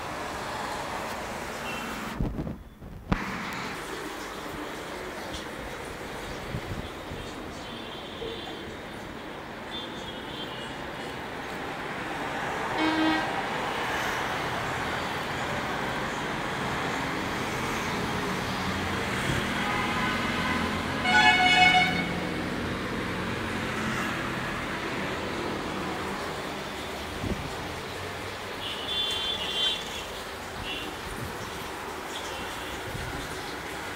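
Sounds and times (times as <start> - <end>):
street traffic: 0.0 - 33.9
vehicle horns honking: 12.8 - 13.4, 19.3 - 22.2, 28.6 - 31.0.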